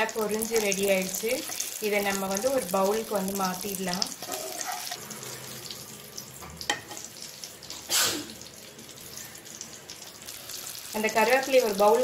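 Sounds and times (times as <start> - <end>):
hot oil sizzling: 0.0 - 12.0
spoon scraping glass bowl: 4.2 - 5.0.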